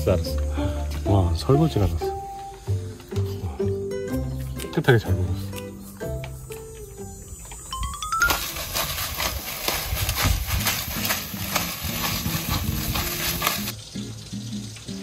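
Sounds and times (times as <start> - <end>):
background music: 0.0 - 8.8, 10.8 - 15.0
food sizzling on a grill: 8.3 - 15.0.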